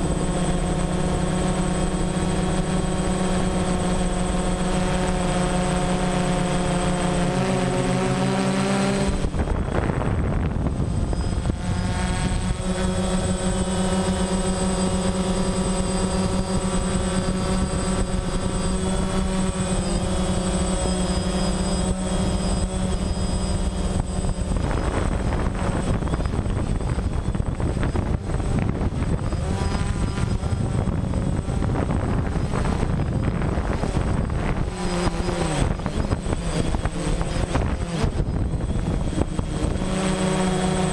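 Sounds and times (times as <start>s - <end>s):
drone propellers buzzing: 0.0s - 40.9s
wind noise on microphone: 0.0s - 40.9s.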